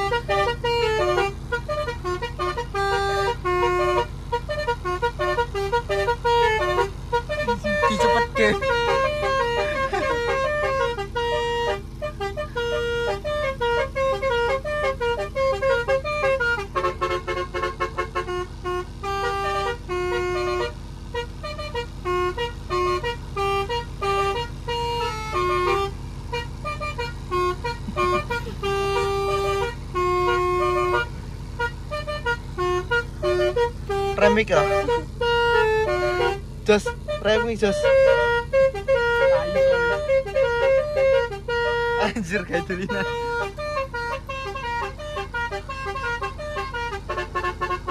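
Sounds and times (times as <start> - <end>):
musical car horn melody: 0.0 - 47.9.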